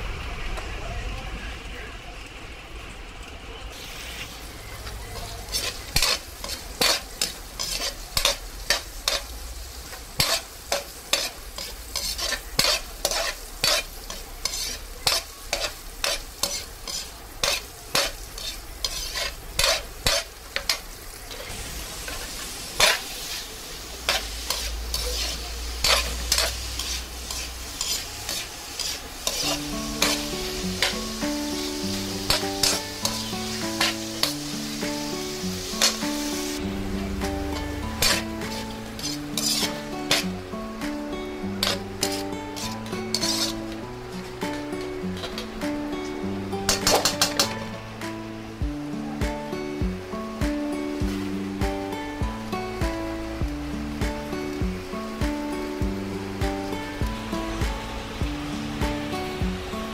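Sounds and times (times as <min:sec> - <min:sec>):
food sizzling: 0:03.7 - 0:59.9
metal spatula scraping a wok: 0:03.8 - 0:40.3, 0:41.6 - 0:43.8, 0:44.5 - 0:45.7, 0:46.6 - 0:47.8.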